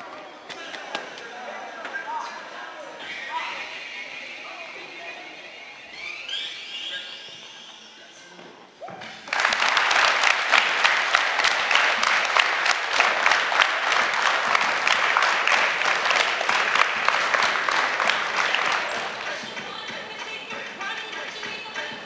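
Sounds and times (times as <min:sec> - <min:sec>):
crowd clapping: 0:09.0 - 0:22.0.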